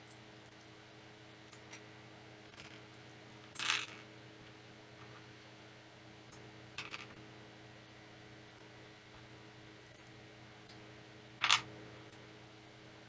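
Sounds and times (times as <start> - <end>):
plastic pieces clicking and clattering: 11.4 - 11.7.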